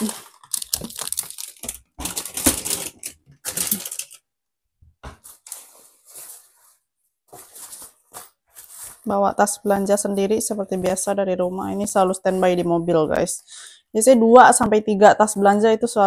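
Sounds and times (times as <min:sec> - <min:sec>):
shopping bags rustling and crinkling: 0:00.0 - 0:04.2, 0:05.2 - 0:12.8.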